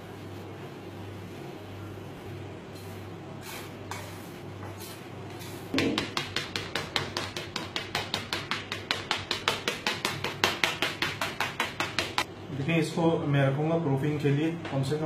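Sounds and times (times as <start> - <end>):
knife tapping through dough into metal pan: 5.7 - 12.3.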